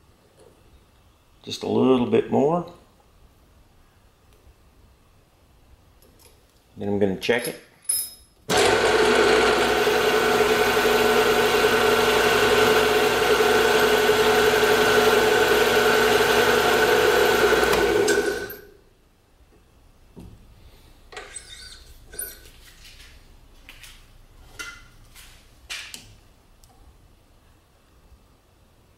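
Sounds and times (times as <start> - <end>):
milling machine spindle humming: 8.5 - 18.7.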